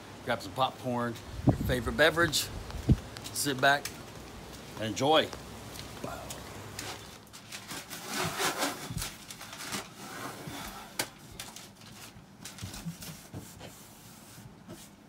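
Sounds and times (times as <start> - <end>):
paper rustling and crinkling: 6.7 - 15.0.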